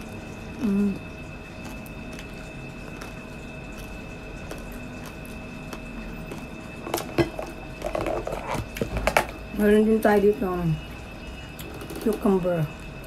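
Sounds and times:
person chewing crunchy food: 0.0s - 9.5s
faint background hum: 0.0s - 13.0s
thin high whine: 0.0s - 13.0s.

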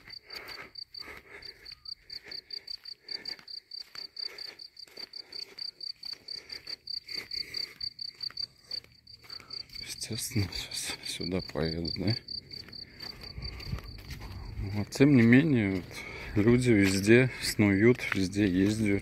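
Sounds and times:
cricket chirping: 0.0s - 15.0s
footsteps crunching on dirt: 0.0s - 19.0s.

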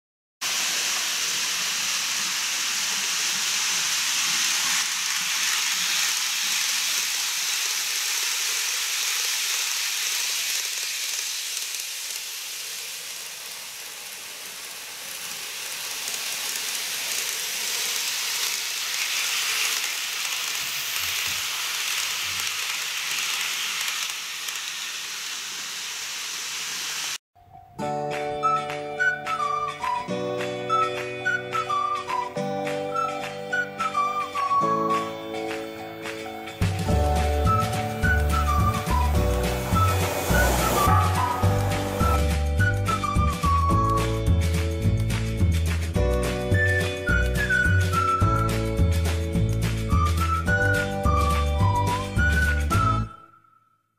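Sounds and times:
model train whirring on track: 0.5s - 27.2s, 36.6s - 43.6s
music: 27.4s - 53.6s.

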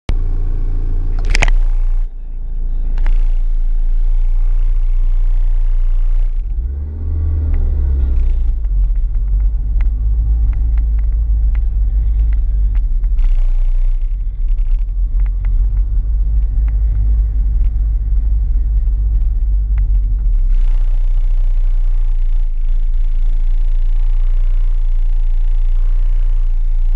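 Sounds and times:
car engine revving: 0.1s - 26.9s
wind rumble: 4.6s - 23.2s.

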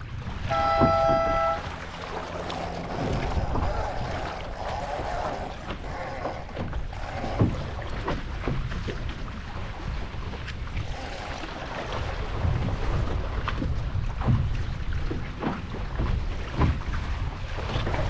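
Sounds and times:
water splashes: 0.0s - 18.0s
wind and water rushing past hull: 0.0s - 18.0s
horn blast: 0.4s - 3.4s.

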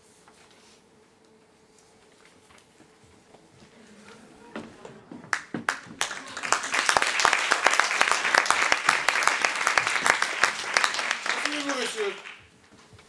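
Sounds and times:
audience applauding: 4.5s - 12.6s.

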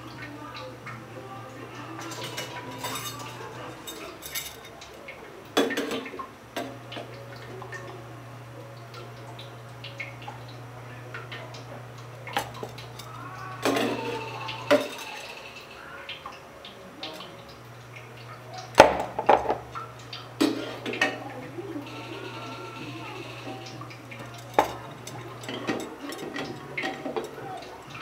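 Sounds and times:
low steady hum: 0.0s - 28.0s
kitchenware clinking and knocking: 2.0s - 7.1s, 12.2s - 15.6s, 18.8s - 19.8s, 20.4s - 21.3s, 23.1s - 28.0s.

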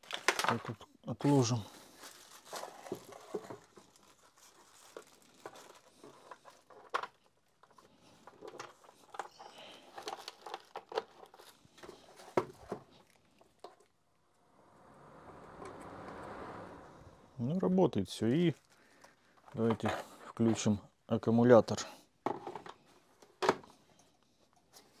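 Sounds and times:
plastic bag crinkling: 0.0s - 14.0s, 18.3s - 19.7s
clicks and knocks of handling: 5.4s - 13.9s, 22.2s - 23.7s.

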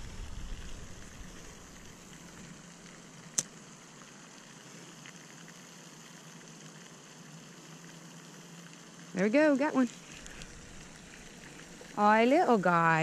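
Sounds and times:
low hum: 0.0s - 4.0s, 9.9s - 13.0s
outdoor background hiss: 0.0s - 13.0s.

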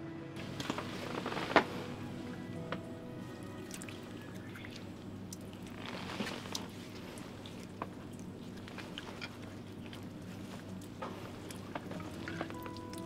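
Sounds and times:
water trickling onto hands: 3.5s - 13.0s
small splashes: 3.6s - 13.0s.

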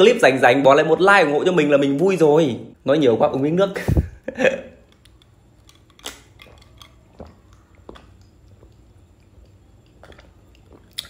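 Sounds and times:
person swallowing and gulping: 6.1s - 11.0s.

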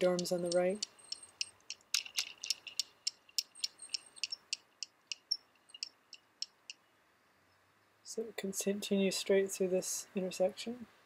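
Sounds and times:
bicycle freewheel ticking: 0.0s - 5.9s.

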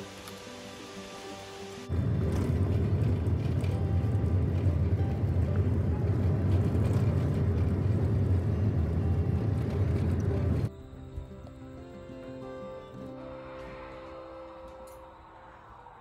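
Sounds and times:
faint music: 0.0s - 16.0s
van engine and tyres rumbling: 1.9s - 10.8s.

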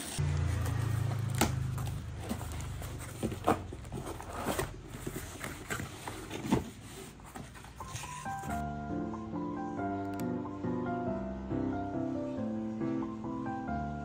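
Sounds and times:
cardboard box rustling and scraping: 0.0s - 8.6s.

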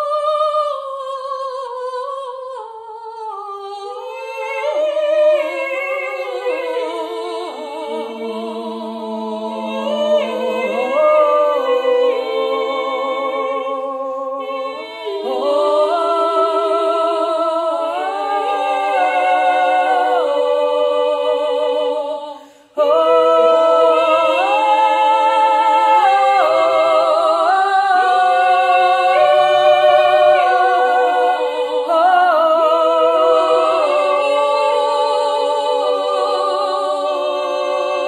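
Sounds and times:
women singing a cappella harmony: 0.0s - 38.0s.

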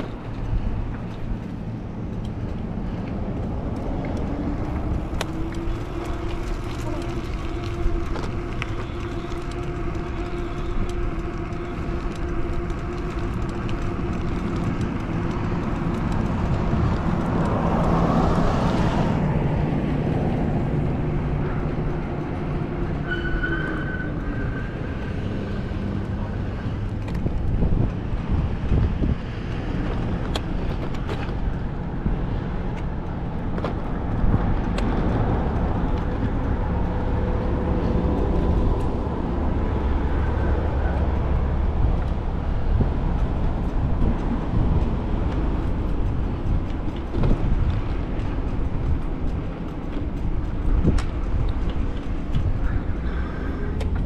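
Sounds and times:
vehicle passing close: 0.0s - 23.2s
held engine-like tones: 0.0s - 54.0s
vehicle and road noise: 0.0s - 54.0s.

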